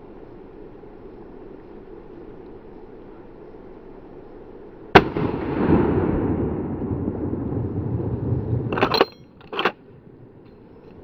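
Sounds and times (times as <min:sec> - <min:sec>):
rifle shot with rolling echo: 0:04.9 - 0:08.9
short clattering: 0:08.7 - 0:11.0.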